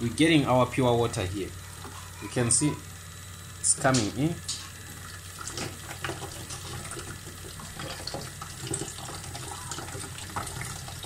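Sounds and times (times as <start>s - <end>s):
water purifier humming: 0.0s - 11.0s.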